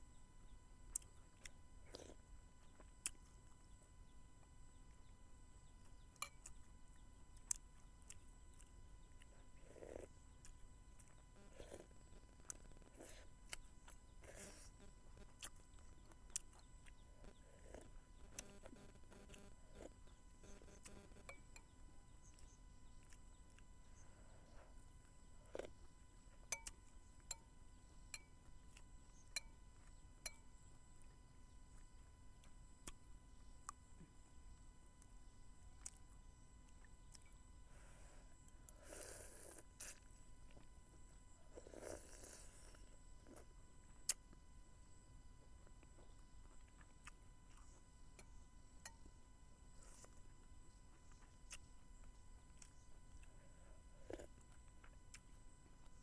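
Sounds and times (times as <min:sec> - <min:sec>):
chewing: 0:00.8 - 0:56.0
soft slurping: 0:07.4 - 0:21.3, 0:36.8 - 0:40.7, 0:41.4 - 0:44.2, 0:49.7 - 0:56.0.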